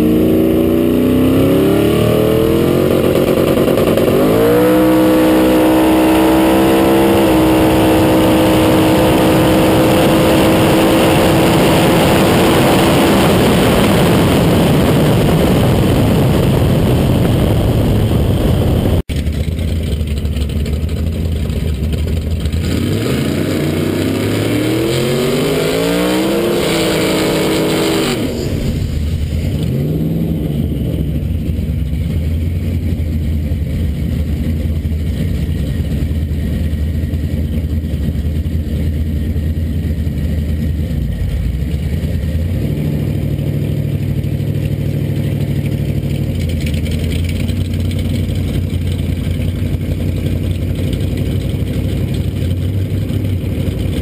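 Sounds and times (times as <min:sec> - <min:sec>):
car engine at full throttle: 0:00.0 - 0:54.0
road noise: 0:00.0 - 0:54.0
rushing wind: 0:01.4 - 0:19.1, 0:22.6 - 0:39.6.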